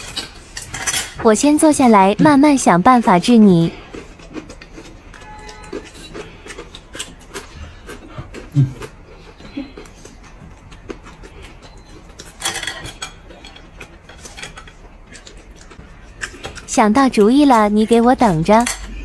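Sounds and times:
chewing and slurping: 3.0 - 16.7
chopsticks clicking against bowls: 3.9 - 19.0.

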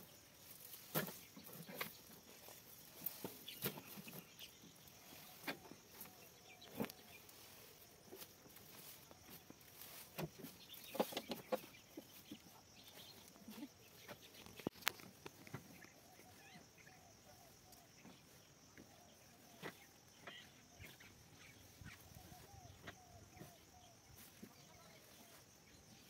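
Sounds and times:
fodder stalks rustling and knocking: 0.0 - 16.5.

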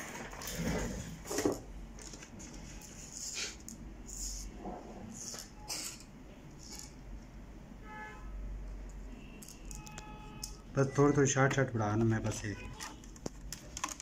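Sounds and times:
rustling and handling noises: 0.0 - 4.5, 11.2 - 14.0.

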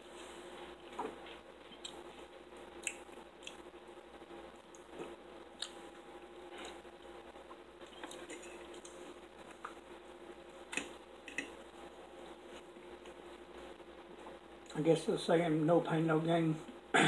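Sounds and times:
faint steady hum: 0.0 - 17.0
chewing and mouth smacks: 2.8 - 3.8, 4.6 - 5.8, 6.6 - 9.8.

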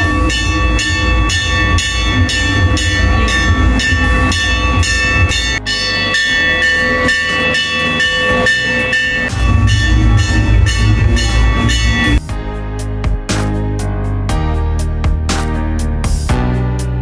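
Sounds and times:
deep drum rumble: 0.0 - 5.6, 9.3 - 13.2
ringing bell-like tones: 0.0 - 12.2
metallic cymbal clashes: 0.0 - 12.3.

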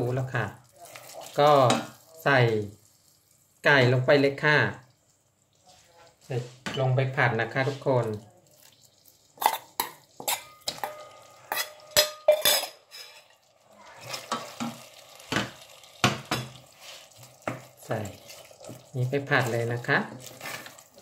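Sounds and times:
wooden spoon stirring: 5.0 - 21.0
metal bowl clacking against pot: 9.4 - 13.3
bowl scraping pot: 9.4 - 14.9, 16.2 - 21.0.

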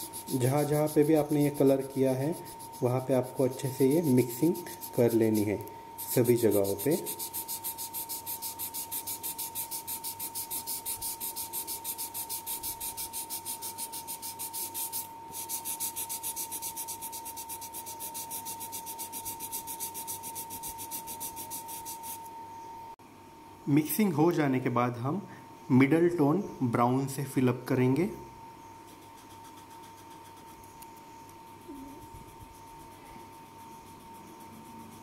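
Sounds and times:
paper rubbing over oil pastel: 0.0 - 22.2.

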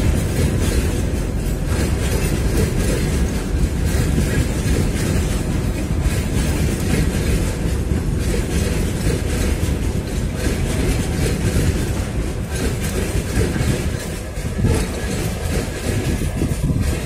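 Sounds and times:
freight train wheels rumbling on rails: 0.0 - 17.0.

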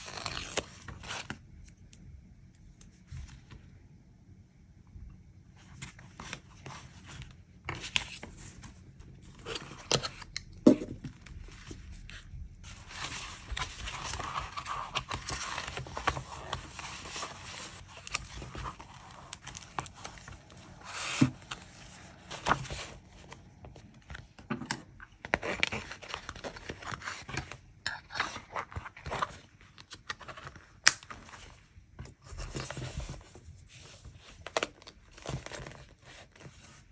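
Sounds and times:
paper rustling and rubbing: 11.2 - 23.4.

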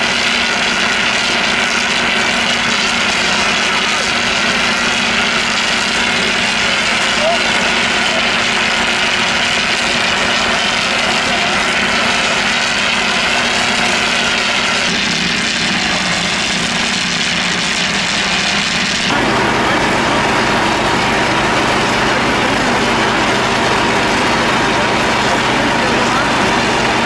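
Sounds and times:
heavy vehicle engines running: 0.0 - 27.0.

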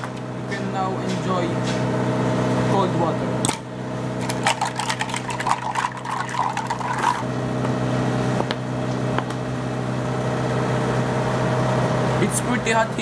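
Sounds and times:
background hum: 3.4 - 7.7
ice cubes clicking on table: 4.2 - 7.2
water and ice splashing in cup: 4.2 - 7.2.

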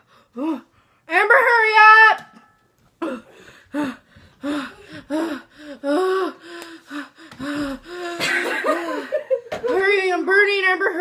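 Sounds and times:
woman gasping and whimpering: 3.0 - 8.4.

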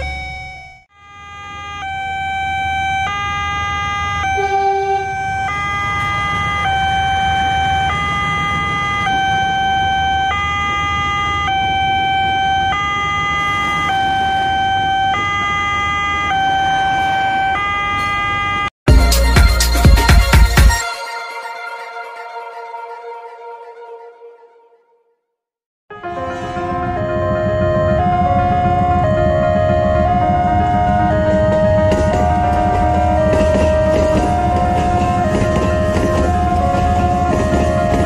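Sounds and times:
two-tone crossing alarm: 0.0 - 18.7, 26.6 - 38.0
electric train passing: 2.4 - 18.6, 25.9 - 38.0.

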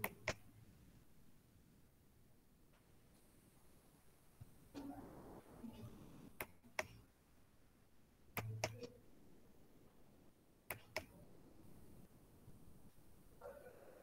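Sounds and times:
faint room hiss: 0.0 - 14.0
faint muffled voice: 4.8 - 6.2, 13.4 - 14.0
sharp clicks: 8.4 - 9.0, 10.7 - 11.2.

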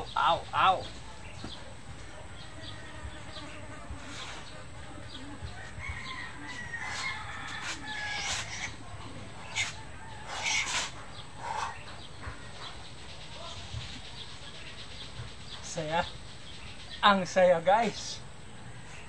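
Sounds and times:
rooster crowing: 5.5 - 8.8, 9.6 - 10.9.

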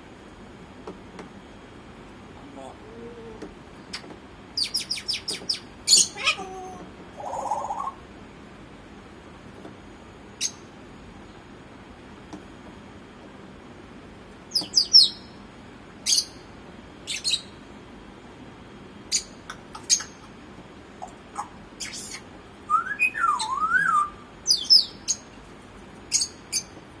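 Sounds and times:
parrot chirping and squeaking: 4.6 - 6.5, 19.1 - 20.2, 24.5 - 25.2, 26.1 - 26.7
parrot warbling whistle: 21.4 - 24.9.

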